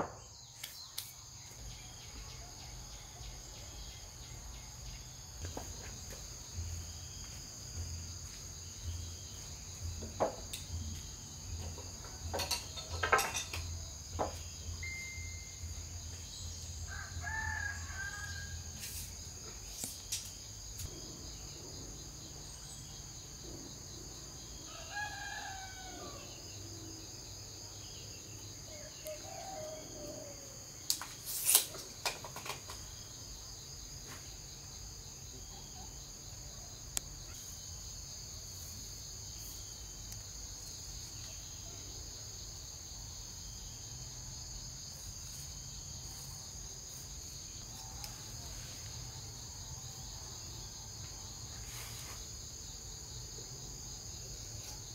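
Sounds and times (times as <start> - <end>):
high insect drone: 0.0 - 54.9
rooster crowing: 16.9 - 18.8, 24.6 - 26.5.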